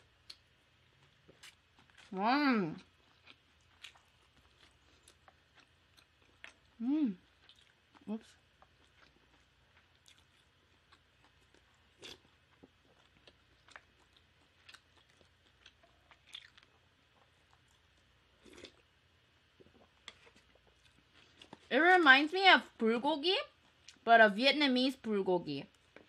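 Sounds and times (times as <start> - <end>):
faint chewing: 0.0 - 2.2, 2.8 - 18.8, 19.6 - 21.7.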